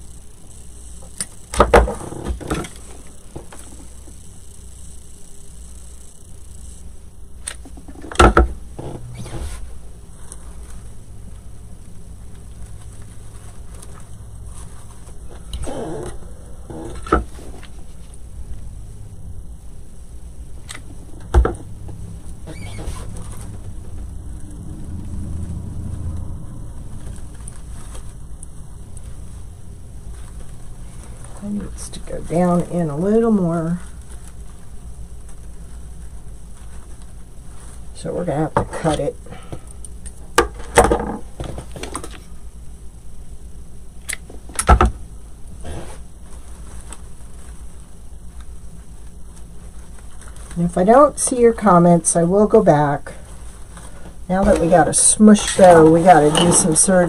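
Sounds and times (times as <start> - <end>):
steady low hum: 0.0 - 57.0
hands rustling craft materials: 45.5 - 51.8, 53.2 - 57.0.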